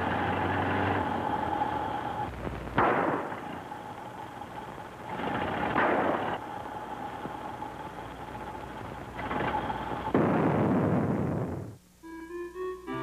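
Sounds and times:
steady electronic hum: 0.0s - 13.0s.

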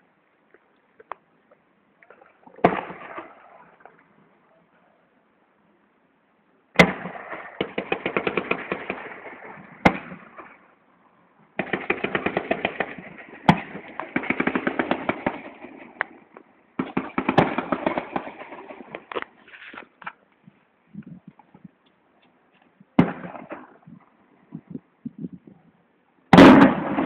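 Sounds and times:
loud firework bangs: 6.8s - 10.6s, 23.0s - 23.8s, 26.3s - 27.0s.

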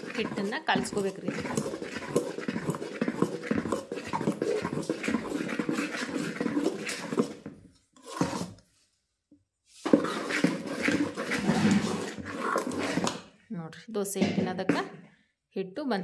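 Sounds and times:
spoon stirring batter in bowl: 0.0s - 8.9s, 9.7s - 13.4s, 14.1s - 15.1s.

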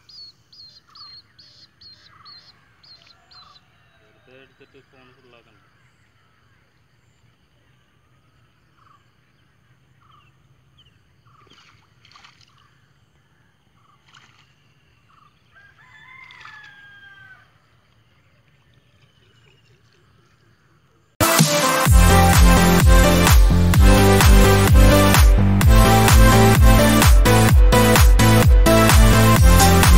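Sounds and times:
rooster crowing: 2.0s - 4.6s, 15.5s - 17.7s.

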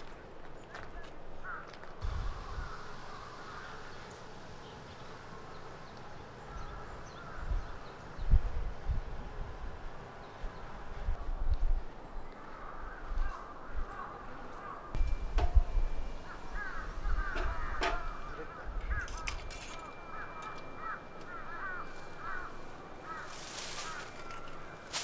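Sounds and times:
birds chirping: 0.2s - 25.0s
wind rumbling on microphone: 2.0s - 2.8s, 6.5s - 12.2s
sharp knocks: 15.3s - 15.8s, 17.3s - 18.2s.

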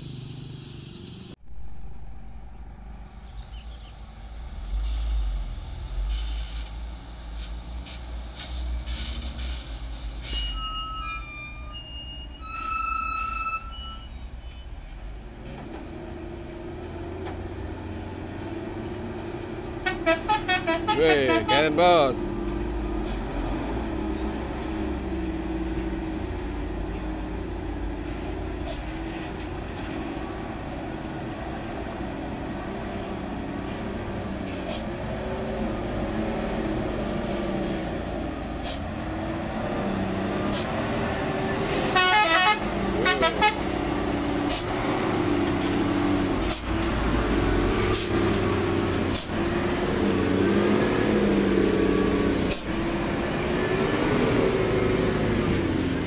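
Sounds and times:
diesel truck engine running: 0.0s - 12.4s, 13.6s - 56.0s
truck horn: 10.3s - 14.6s, 19.6s - 22.2s, 41.5s - 44.2s.

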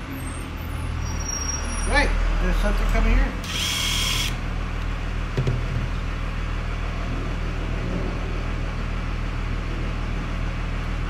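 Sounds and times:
low mechanical hum: 2.2s - 11.0s
cordless drill whirring: 3.4s - 4.4s.

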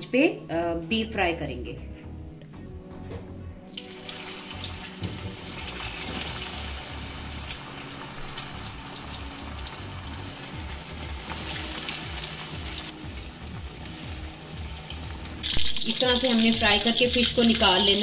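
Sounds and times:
background music: 0.0s - 18.0s
fish deep-frying in oil: 3.7s - 18.0s.

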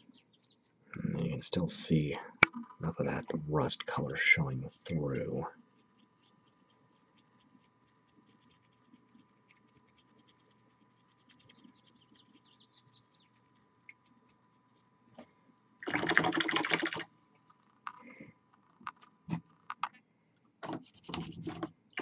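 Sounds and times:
paintbrush scratching strokes: 0.0s - 1.8s, 3.1s - 15.0s, 20.7s - 21.6s.

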